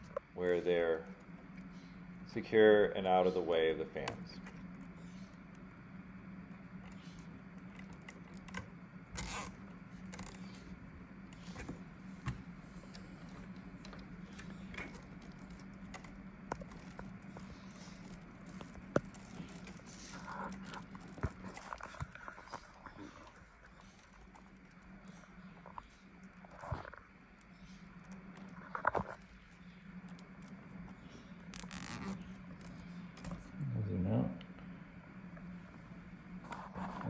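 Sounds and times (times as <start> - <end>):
steady low hum: 0.0 - 37.0
cables and zip ties handled: 6.5 - 27.2, 28.0 - 33.5.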